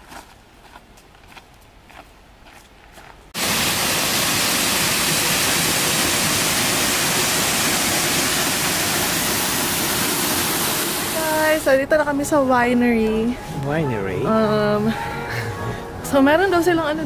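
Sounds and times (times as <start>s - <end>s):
faint footsteps on leaves: 0.0s - 3.3s
water rushing over a dam: 3.4s - 11.2s.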